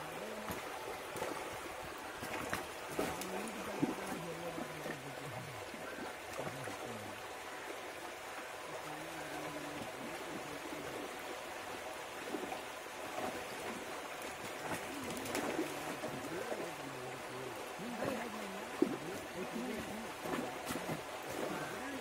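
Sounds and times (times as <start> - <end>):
running water: 0.0 - 22.0
low voices talking: 3.1 - 7.7, 14.9 - 20.2.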